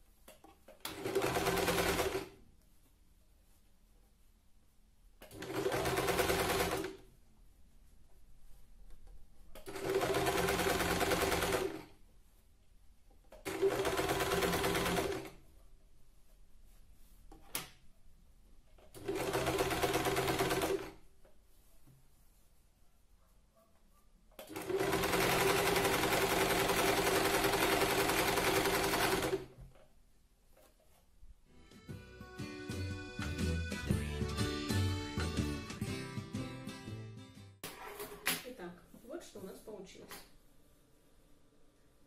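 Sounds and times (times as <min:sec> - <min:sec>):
sewing machine stitching: 0:00.8 - 0:02.4, 0:05.2 - 0:07.0, 0:09.6 - 0:11.9, 0:13.4 - 0:15.4, 0:18.9 - 0:20.9, 0:24.4 - 0:29.5.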